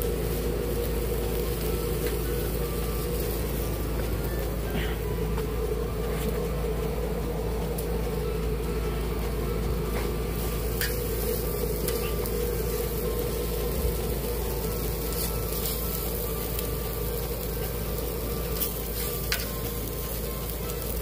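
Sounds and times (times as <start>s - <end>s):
food sizzling on griddle: 0.0s - 4.7s, 10.0s - 21.0s
steady low hum: 0.0s - 21.0s.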